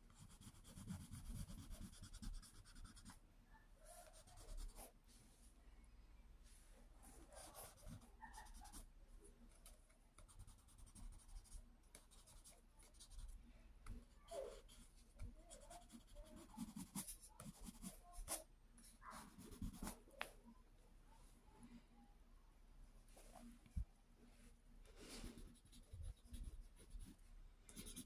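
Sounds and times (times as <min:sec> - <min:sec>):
scratching on paper: 0:00.1 - 0:03.2, 0:03.9 - 0:05.0, 0:07.2 - 0:08.9, 0:09.5 - 0:20.1, 0:25.1 - 0:28.0.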